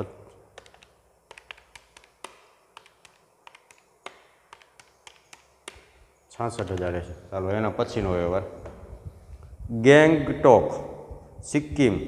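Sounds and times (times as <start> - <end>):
chalk tapping on blackboard: 0.6 - 7.0.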